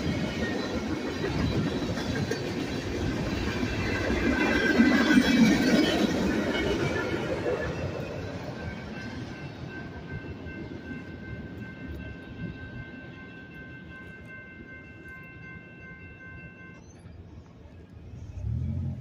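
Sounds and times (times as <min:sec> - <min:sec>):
crossing warning bell ringing: 0:00.0 - 0:18.6
freight train rumble: 0:00.0 - 0:19.0
road vehicle engine rumble: 0:17.2 - 0:19.0.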